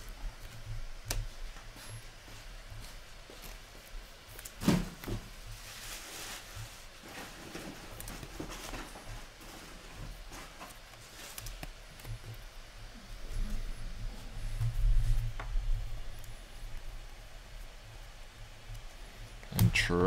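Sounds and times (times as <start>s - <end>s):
cards rustling and clicking: 0.0s - 12.9s
thump: 4.6s - 5.3s.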